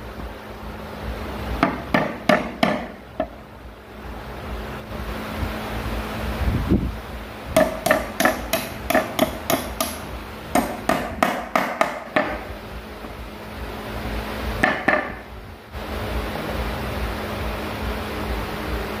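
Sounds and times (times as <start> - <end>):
hammer striking nail: 1.6 - 3.4, 7.6 - 12.5, 14.6 - 15.2.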